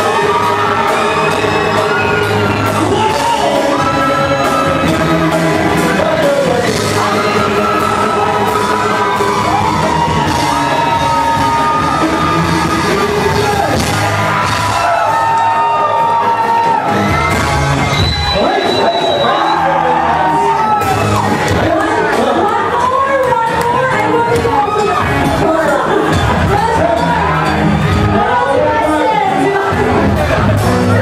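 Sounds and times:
singers singing into microphones: 0.0s - 14.5s
live band playing pop song: 0.0s - 31.0s.

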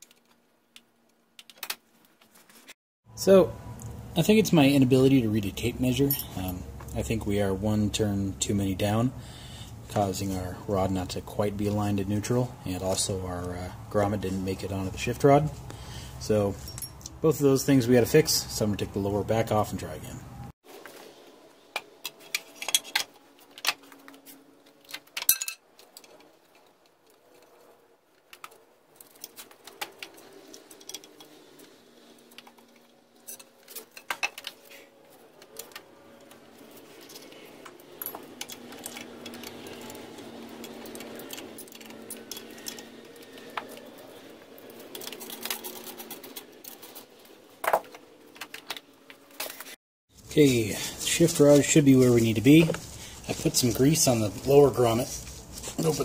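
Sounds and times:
metal tools clinking and clattering: 6.0s - 6.6s, 16.5s - 17.2s, 22.1s - 24.0s, 25.1s - 26.6s, 29.0s - 34.8s, 36.5s - 48.6s.

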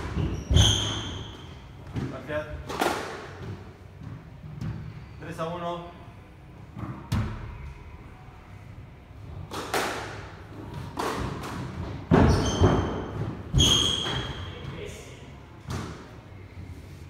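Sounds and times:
squash ball hitting rackets and walls: 0.0s - 4.9s, 6.7s - 7.7s, 9.3s - 14.9s, 15.6s - 16.2s.

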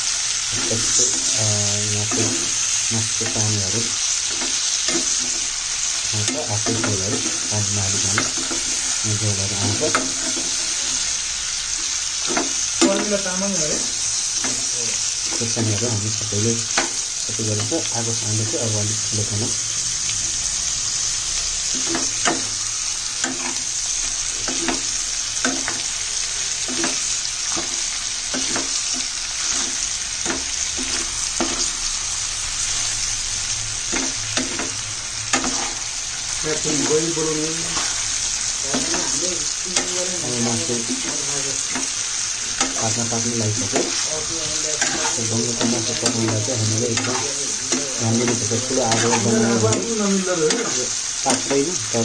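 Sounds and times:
meat sizzling in hot oil: 0.0s - 52.0s
metal spoon scraping pan: 36.5s - 49.9s.

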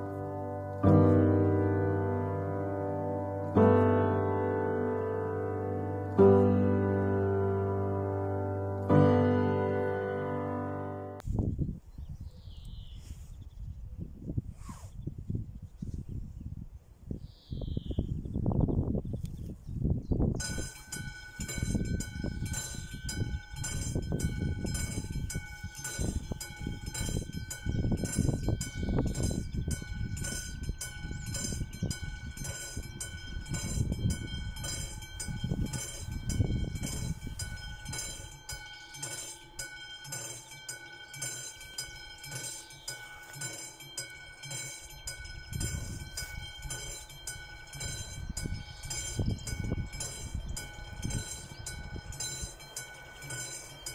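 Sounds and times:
level crossing bell ringing: 20.4s - 53.9s.

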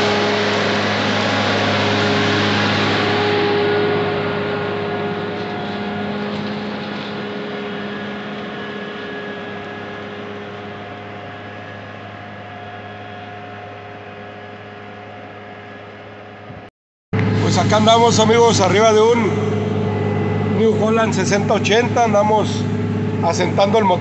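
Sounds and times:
tractor diesel engine under load: 0.0s - 12.2s, 17.2s - 24.0s.

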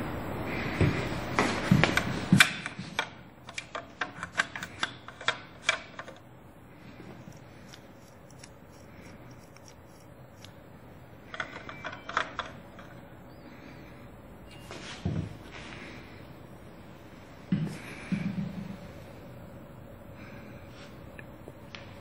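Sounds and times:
plastic parts clicking and knocking: 1.7s - 6.2s, 11.3s - 12.9s.

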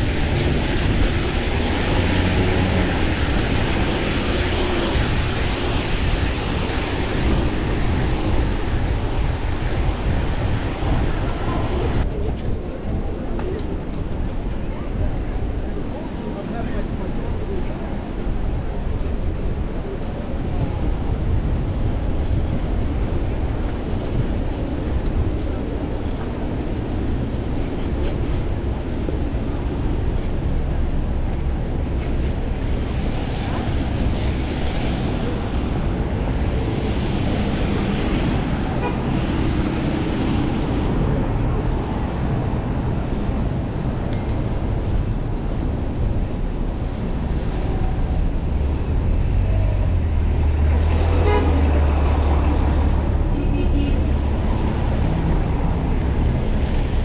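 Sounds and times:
cars passing: 0.0s - 12.1s, 16.5s - 57.0s
wind on microphone: 0.0s - 16.2s.

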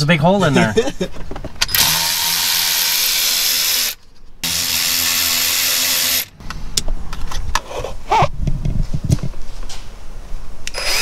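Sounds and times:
electric ratchet running: 1.7s - 6.4s, 10.7s - 11.0s.

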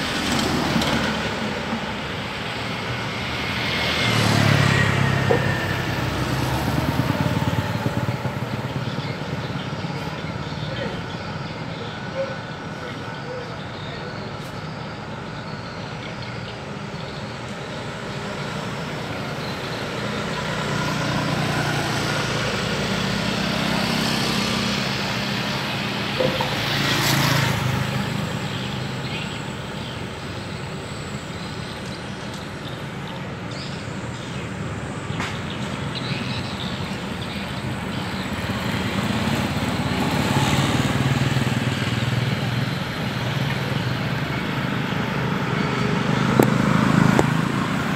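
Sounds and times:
car passing: 0.0s - 11.7s, 17.7s - 31.5s, 35.9s - 47.9s
motorcycle passing: 0.0s - 12.6s, 18.0s - 30.8s, 35.4s - 47.9s
street traffic passing: 0.0s - 47.9s
low engine hum: 37.4s - 47.9s.

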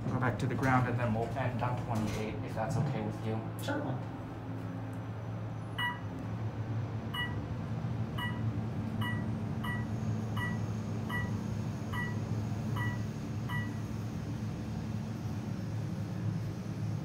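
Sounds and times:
elevator hum: 0.0s - 17.0s
short electronic beeps: 5.8s - 6.1s, 7.1s - 7.4s, 8.2s - 13.8s.

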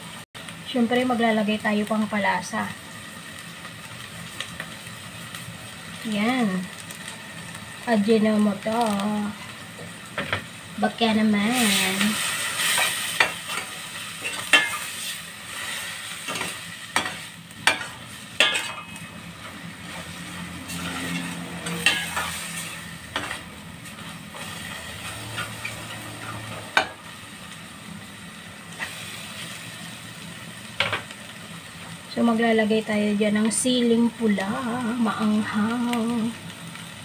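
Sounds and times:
food sizzling in pan: 0.0s - 37.0s.

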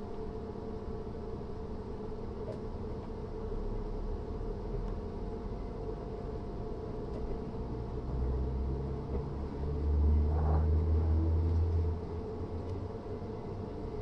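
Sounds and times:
train electrical hum: 0.0s - 14.0s
low rumble: 7.9s - 12.5s.

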